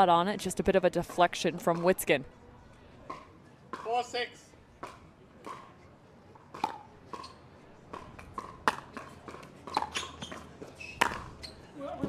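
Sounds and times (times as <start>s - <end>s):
paddle hitting pickleball: 4.8s - 5.7s, 6.5s - 7.3s, 7.9s - 10.4s, 11.0s - 11.3s
ball bouncing on hard court: 6.6s - 11.3s.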